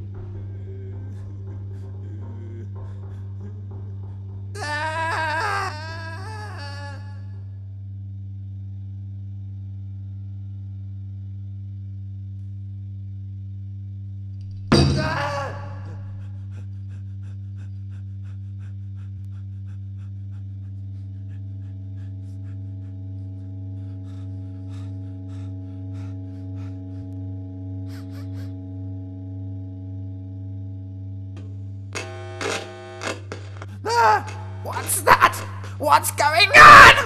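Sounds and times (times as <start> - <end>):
low electrical hum: 0.0 - 37.0
buzzy tone pulses: 31.8 - 35.6.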